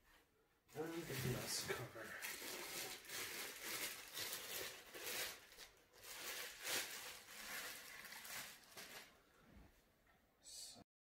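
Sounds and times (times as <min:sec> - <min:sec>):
plastic bag crinkling: 0:00.8 - 0:09.3.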